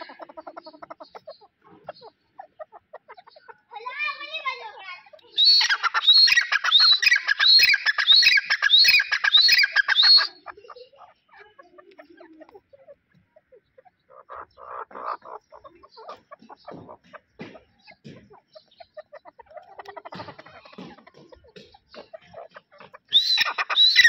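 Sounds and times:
francolin calling harsh repeated notes: 0:00.0 - 0:10.4, 0:21.6 - 0:24.0.

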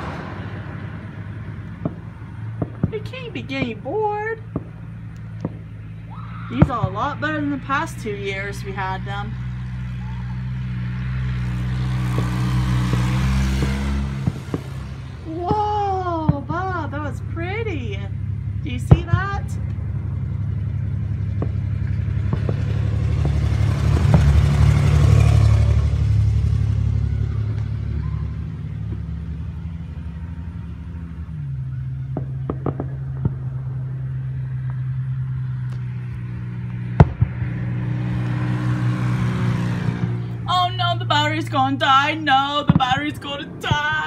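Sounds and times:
cars passing: 0:00.0 - 0:44.0
fireworks popping: 0:01.5 - 0:05.8, 0:11.8 - 0:16.8, 0:18.7 - 0:19.8, 0:21.3 - 0:24.6, 0:32.1 - 0:38.4, 0:41.9 - 0:44.0.

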